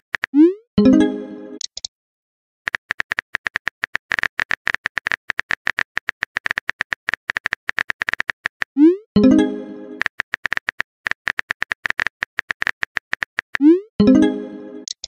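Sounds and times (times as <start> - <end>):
message notification chime: 0.8 - 1.6, 9.2 - 10.0, 14.0 - 14.9
phone keyboard typing clicks: 9.9 - 13.6.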